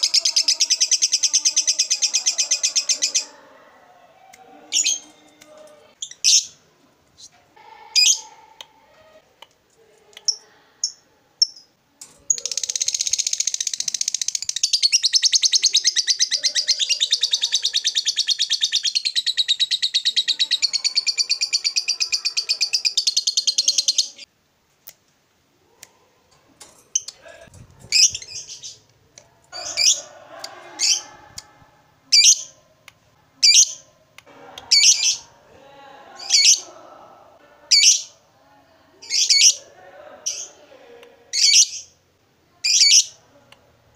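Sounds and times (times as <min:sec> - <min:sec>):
lovebird chattering: 0:12.3 - 0:24.3, 0:32.1 - 0:32.5, 0:33.4 - 0:33.8.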